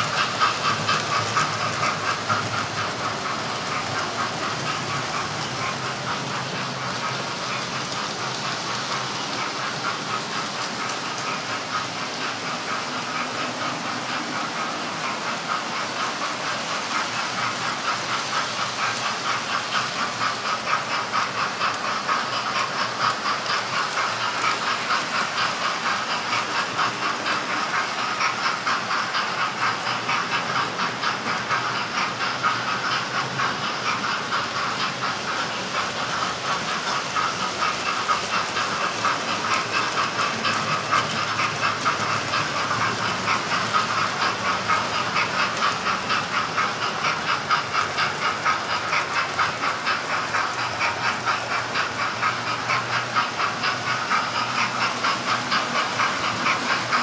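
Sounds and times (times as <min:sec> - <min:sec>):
wheels clicking over rail joints: 0:00.0 - 0:57.0.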